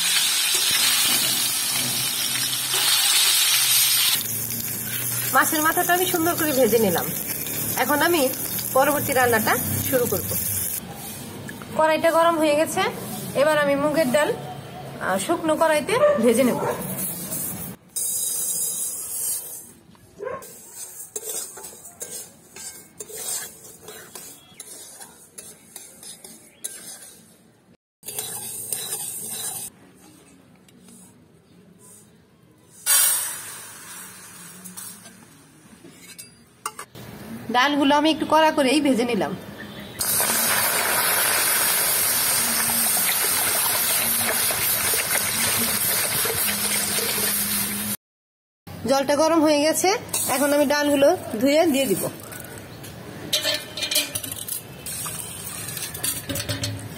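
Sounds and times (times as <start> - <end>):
metal spatula scraping pan: 16.9 - 19.7, 20.4 - 29.7, 53.4 - 56.9
water pouring into a pan: 40.0 - 47.4.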